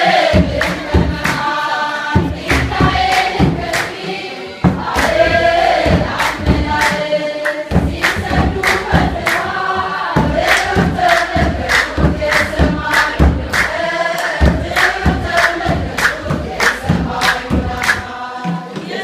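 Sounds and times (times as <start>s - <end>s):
congregation singing a hymn: 0.0s - 19.0s
rhythmic handclapping: 0.0s - 19.0s
low thumps keeping the beat: 0.1s - 19.0s.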